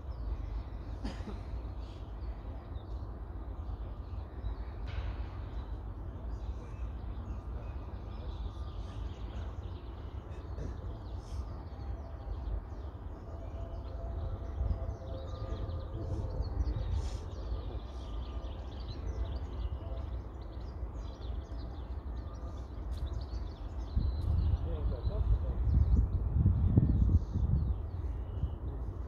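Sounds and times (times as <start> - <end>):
birds chirping: 0.0 - 29.0
wind rumbling on microphone: 13.3 - 20.0, 22.4 - 29.0.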